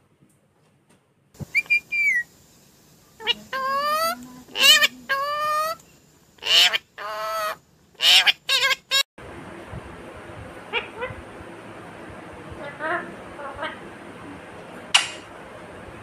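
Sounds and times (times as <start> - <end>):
parakeet calling loudly: 1.4 - 2.3, 3.2 - 5.8, 6.4 - 9.0.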